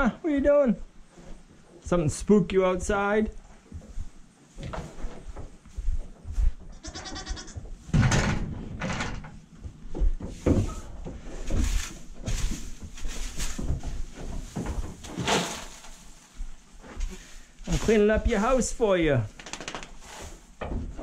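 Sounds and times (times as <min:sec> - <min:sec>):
goat bleating: 0:06.7 - 0:07.6.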